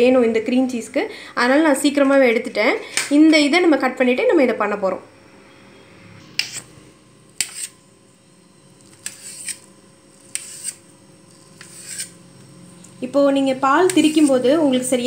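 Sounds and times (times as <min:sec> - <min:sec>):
knife scraping on steel plate: 0:07.4 - 0:07.8, 0:09.0 - 0:12.2.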